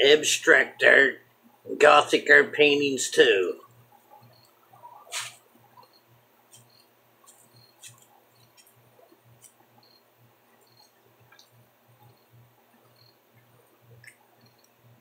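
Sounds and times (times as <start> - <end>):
faint clicks: 10.6 - 14.8.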